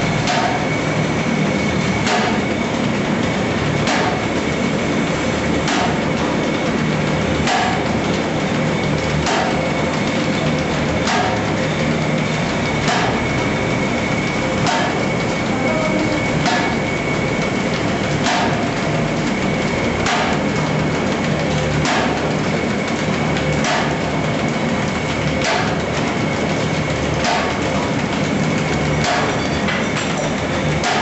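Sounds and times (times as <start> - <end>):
machine whirring with high whine: 0.0 - 31.0
sharp machine knock: 0.2 - 0.8, 2.0 - 2.5, 3.8 - 4.4, 5.6 - 6.7, 7.3 - 8.0, 9.0 - 13.4, 14.5 - 18.8, 20.0 - 20.6, 21.2 - 24.1, 25.1 - 26.6, 27.2 - 31.0.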